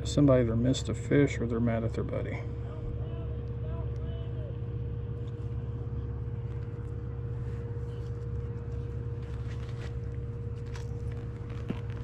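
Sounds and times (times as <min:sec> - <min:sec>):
low mechanical hum: 0:00.0 - 0:12.0
faint clicks and handling sounds: 0:06.4 - 0:12.0.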